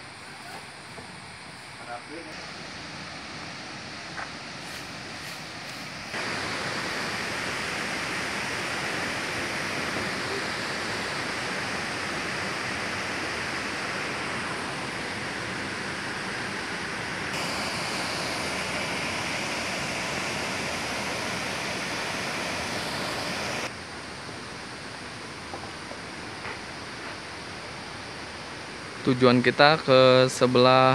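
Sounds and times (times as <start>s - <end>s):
waterfall roar: 4.8s - 25.2s.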